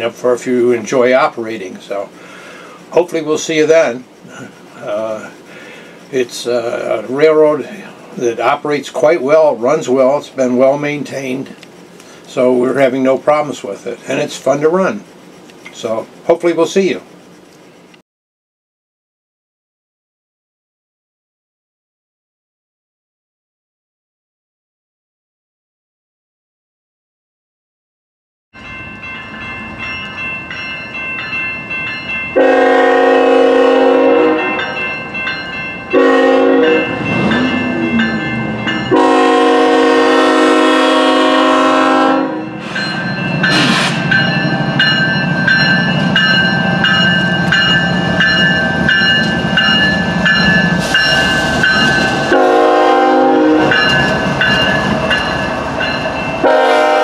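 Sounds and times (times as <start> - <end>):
train rumbling and clattering: 0.0 - 18.0, 28.6 - 57.0
locomotive horn blasts: 32.4 - 34.8, 35.9 - 42.6, 52.3 - 53.9, 56.4 - 57.0.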